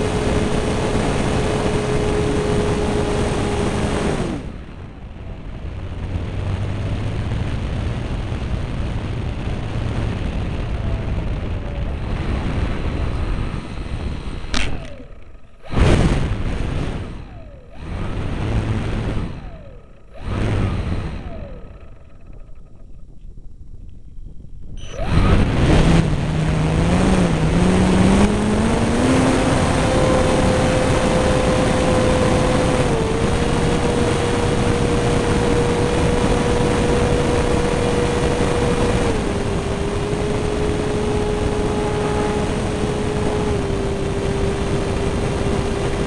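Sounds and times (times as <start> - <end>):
electric motor and propeller whine: 0.0 - 46.0
wind rushing past: 0.0 - 46.0
short loud bursts of noise: 12.0 - 22.9, 24.8 - 46.0.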